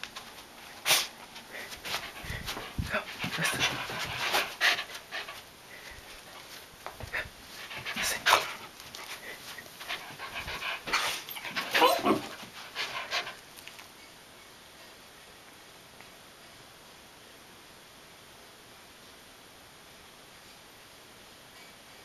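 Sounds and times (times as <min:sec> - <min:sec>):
dog panting: 0:00.8 - 0:13.8.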